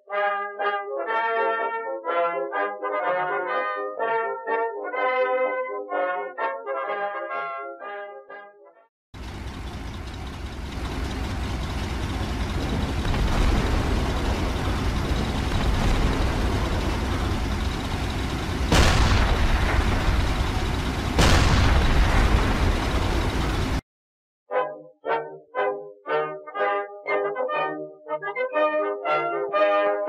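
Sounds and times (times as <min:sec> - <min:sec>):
low steady engine-like noise: 0:09.2 - 0:23.8
explosion booms: 0:12.6 - 0:23.8.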